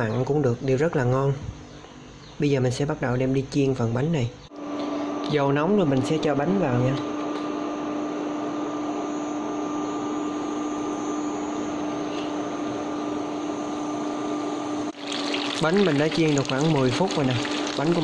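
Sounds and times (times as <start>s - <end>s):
cooling fan whirring hum: 0.0s - 18.0s
pastry deep-frying in oil: 14.9s - 18.0s.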